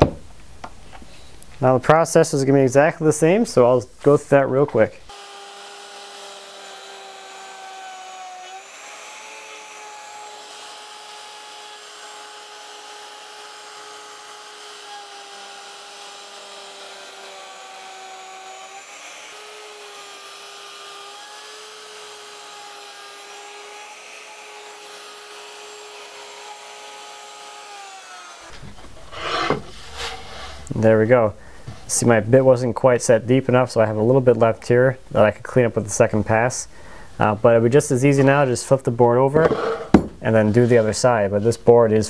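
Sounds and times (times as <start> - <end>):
router whining: 5.1 - 30.7.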